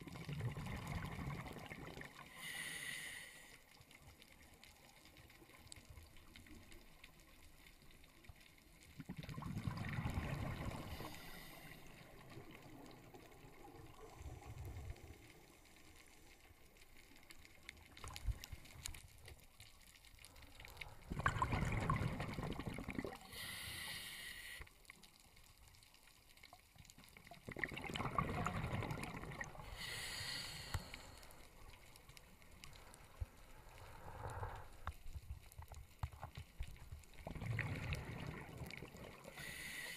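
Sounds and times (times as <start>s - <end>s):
underwater regulator bubbles: 0.0s - 2.2s, 9.0s - 15.4s, 20.8s - 23.6s, 27.2s - 31.8s, 37.1s - 39.8s.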